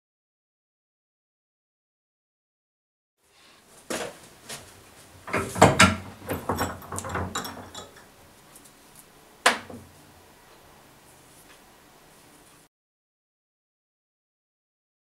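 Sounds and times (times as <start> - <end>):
metal knocks and clatter: 5.2 - 8.1.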